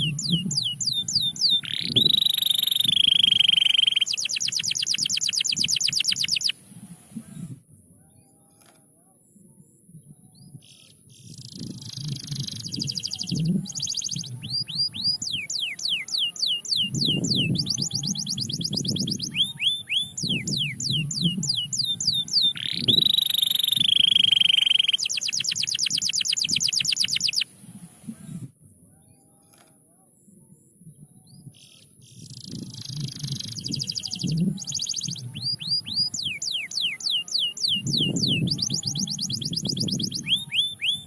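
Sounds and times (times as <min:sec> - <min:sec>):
canary singing trills: 0:00.0 - 0:06.6, 0:10.4 - 0:27.5, 0:31.2 - 0:41.0.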